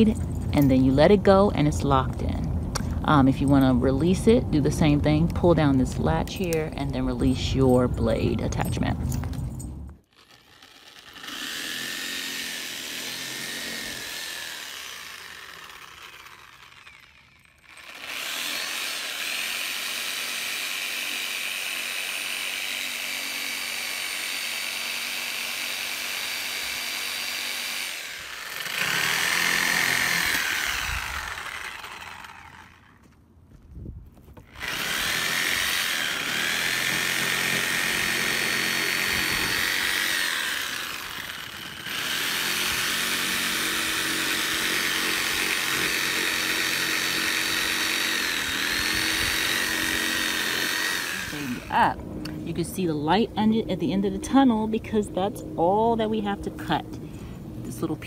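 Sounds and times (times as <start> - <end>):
reciprocating saw cutting roots: 10.0 - 33.0, 34.4 - 52.6.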